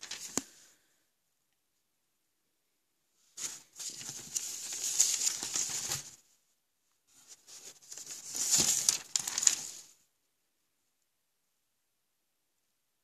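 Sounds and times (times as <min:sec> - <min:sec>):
paper pages rustling: 0:00.0 - 0:00.7, 0:03.3 - 0:06.2, 0:07.1 - 0:10.0.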